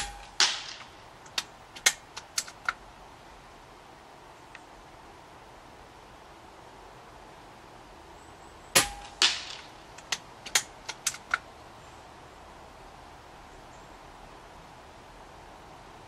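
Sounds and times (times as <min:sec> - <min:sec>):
pellet hitting target: 0:00.0 - 0:00.9, 0:08.8 - 0:09.8
air rifle shot: 0:00.0 - 0:01.0, 0:08.8 - 0:09.8
rifle bolt metallic clicks: 0:00.0 - 0:02.8, 0:08.8 - 0:11.4.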